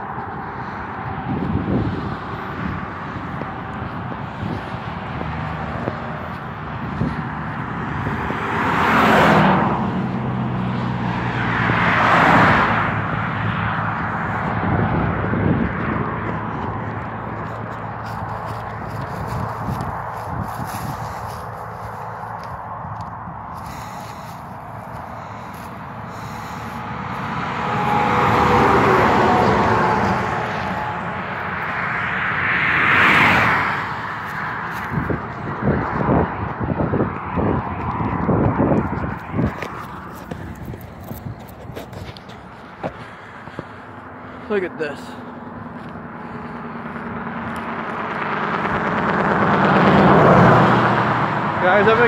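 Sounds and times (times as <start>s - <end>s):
low engine hum: 0.0s - 52.0s
road and wind noise: 0.0s - 52.0s.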